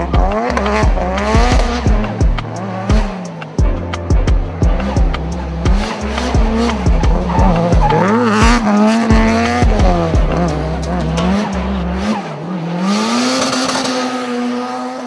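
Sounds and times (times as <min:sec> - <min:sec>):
music beat: 0:00.0 - 0:14.4
car engine revving: 0:00.0 - 0:15.0
tyres squealing: 0:05.2 - 0:12.4.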